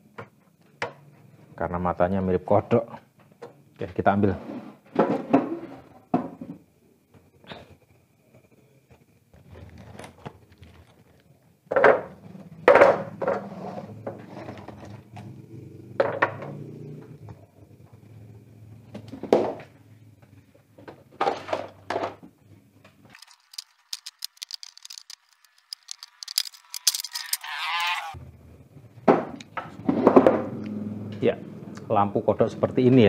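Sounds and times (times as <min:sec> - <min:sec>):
metal strips knocking together: 0:23.1 - 0:28.0.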